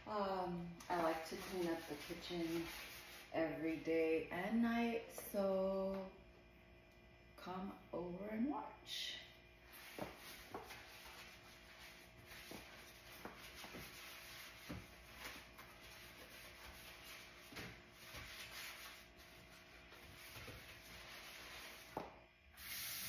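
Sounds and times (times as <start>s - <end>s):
sponge scrubbing: 0.9s - 3.4s, 9.8s - 22.0s.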